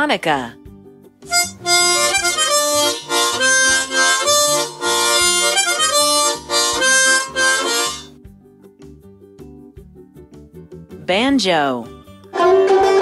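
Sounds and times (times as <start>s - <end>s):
harmonica playing: 1.3s - 8.1s, 12.3s - 13.0s.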